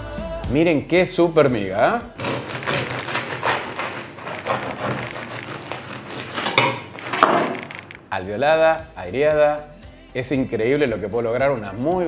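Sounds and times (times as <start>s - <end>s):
bread knife sawing crusty bread: 2.2s - 8.0s.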